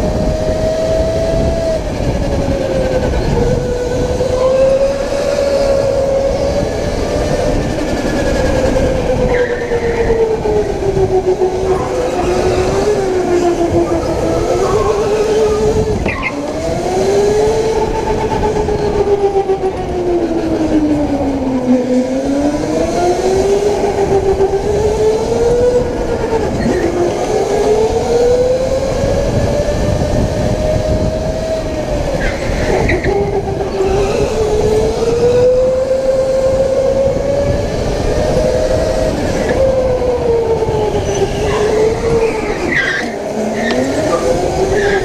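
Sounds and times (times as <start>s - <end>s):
electric motor whine: 0.0s - 45.0s
road and tyre noise: 0.0s - 45.0s
high squeal: 8.7s - 10.4s, 41.0s - 45.0s.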